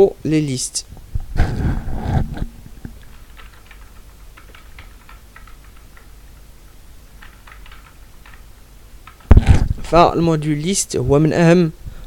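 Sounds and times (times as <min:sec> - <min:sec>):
typing on computer keyboard: 0:03.0 - 0:06.1, 0:07.2 - 0:09.5.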